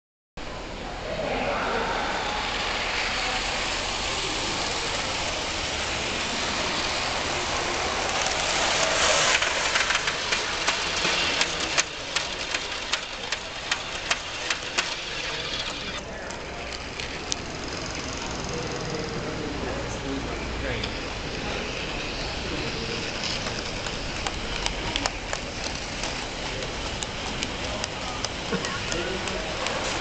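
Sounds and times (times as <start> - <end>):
model train wheels rushing on track: 0.5 - 30.0
sharp irregular clicks: 9.3 - 16.0, 23.2 - 30.0.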